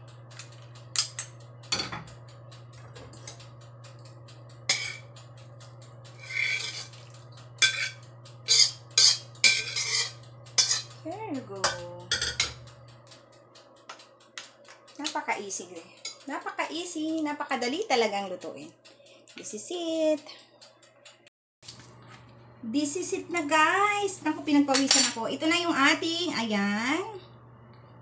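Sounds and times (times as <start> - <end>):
steady low hum: 0.0 - 28.0
metal ladle scraping a pan: 6.2 - 6.9, 7.6 - 10.9.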